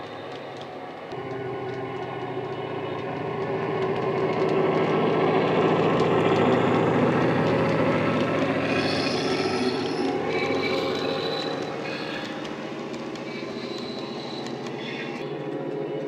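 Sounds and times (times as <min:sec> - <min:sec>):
deep diesel engine drone: 0:01.1 - 0:16.0
wheel squeals on track: 0:08.6 - 0:15.2.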